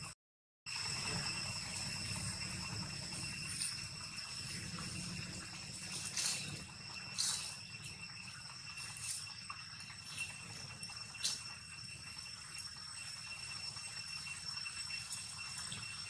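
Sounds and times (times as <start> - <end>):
high-pitched insect drone: 0.7 - 16.0.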